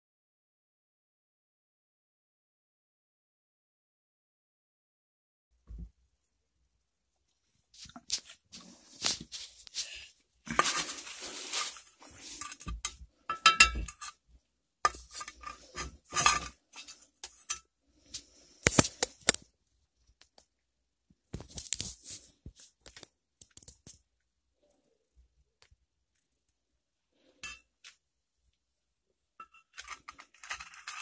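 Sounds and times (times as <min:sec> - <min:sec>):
glass jars clinking: 0:13.3 - 0:14.1.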